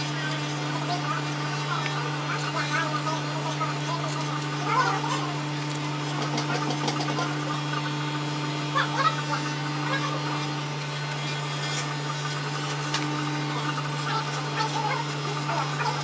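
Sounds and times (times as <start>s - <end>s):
hair clippers buzzing: 3.5s - 16.0s.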